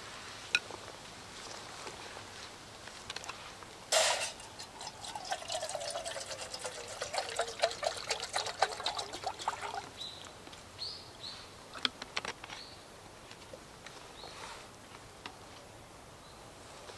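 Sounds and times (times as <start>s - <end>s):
water pouring in a stream: 4.0s - 10.4s.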